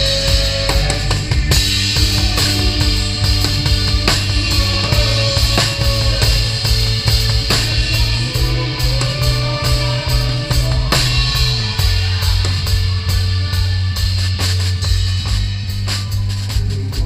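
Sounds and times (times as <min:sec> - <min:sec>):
electric guitar: 0:00.0 - 0:15.0
drum kit beats: 0:00.0 - 0:17.0
low bass notes: 0:00.0 - 0:17.0.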